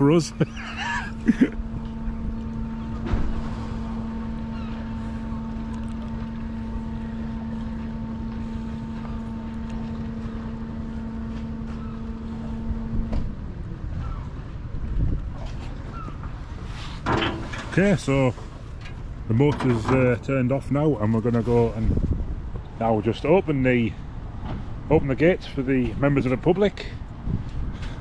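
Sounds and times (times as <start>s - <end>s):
low rumble: 0.0s - 16.7s
bridge drive motor humming: 0.0s - 28.0s.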